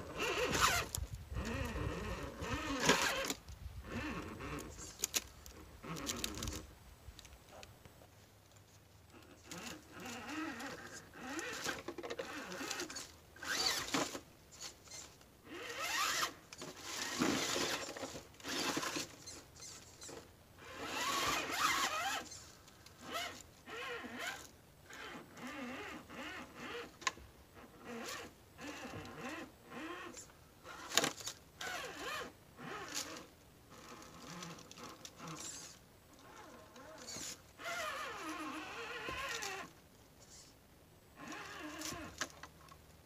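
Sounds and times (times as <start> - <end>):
electric motor whining: 0.0 - 5.0, 18.5 - 22.4.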